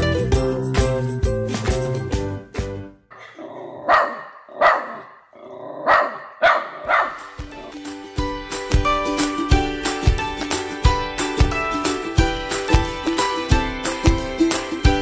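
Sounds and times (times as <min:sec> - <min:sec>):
background music: 0:00.0 - 0:03.0, 0:06.5 - 0:15.0
puppy barking: 0:03.1 - 0:07.8.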